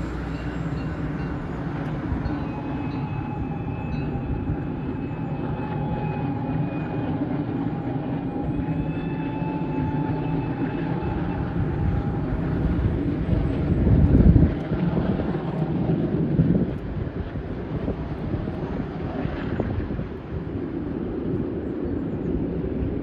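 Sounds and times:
faint high whine: 0:00.0 - 0:13.8
train rumbling on rails: 0:00.0 - 0:23.0.

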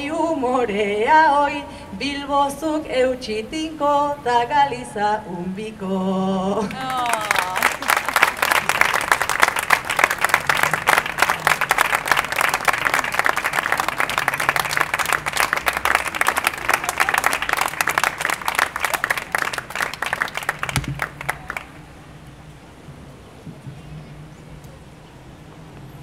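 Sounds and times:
audience applauding: 0:06.7 - 0:21.8.

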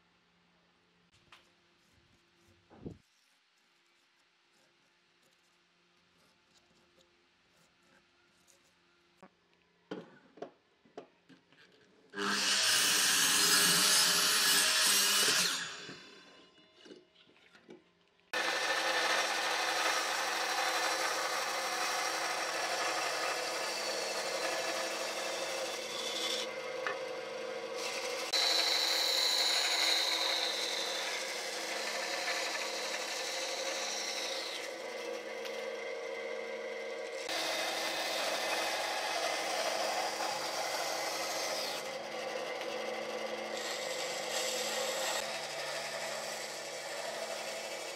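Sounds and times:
band saw cutting wood: 0:12.2 - 0:16.3, 0:18.4 - 0:47.9
miter saw cutting wood: 0:12.2 - 0:16.3, 0:18.4 - 0:47.9.

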